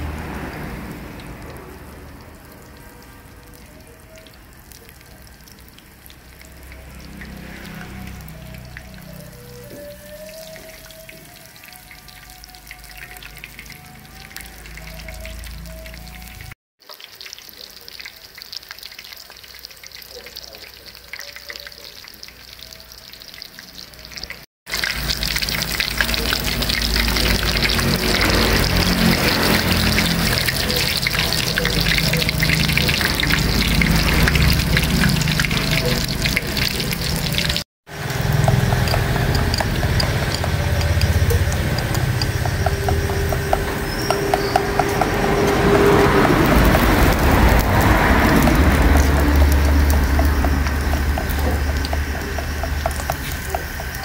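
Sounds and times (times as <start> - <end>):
mushrooms sizzling in hot oil: 16.8 - 54.0.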